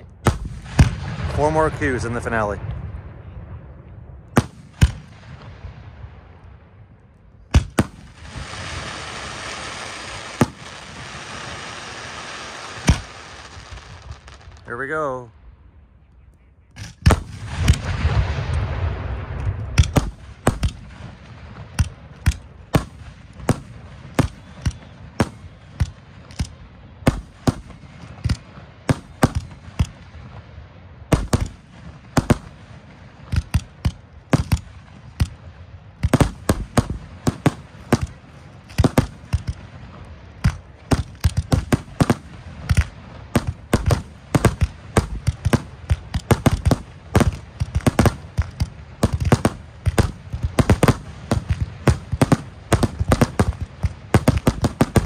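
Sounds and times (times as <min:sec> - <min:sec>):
firework shells bursting: 0:07.5 - 0:14.7, 0:19.3 - 0:30.1, 0:36.0 - 0:39.7, 0:40.4 - 0:55.0.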